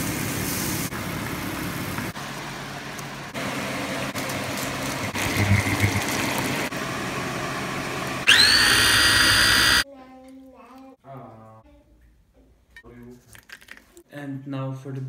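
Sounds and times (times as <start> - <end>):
pumpkin sizzling in a frying pan: 0.0 - 2.8
low hum: 4.6 - 7.2.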